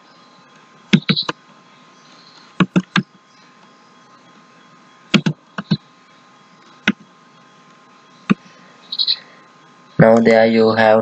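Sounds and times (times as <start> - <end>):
keyboard keystrokes: 2.6 - 3.1, 5.1 - 5.8.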